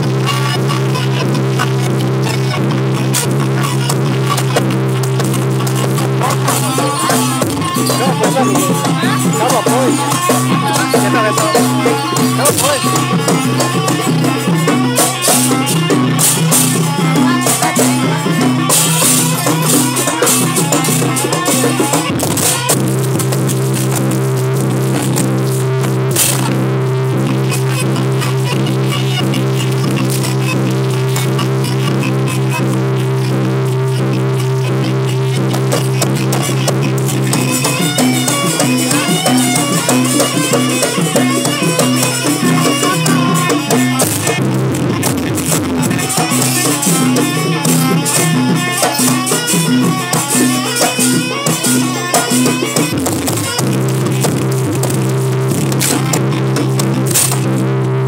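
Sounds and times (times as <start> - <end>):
beating drums: 0.0 - 58.0
jingling percussion: 3.1 - 26.7, 35.4 - 57.6.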